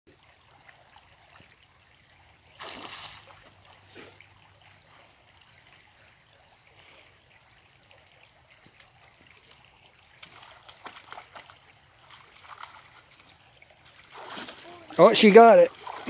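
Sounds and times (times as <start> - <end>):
shallow stream trickling: 0.1 - 16.0
dogs splashing in water: 10.2 - 13.4, 14.0 - 16.0.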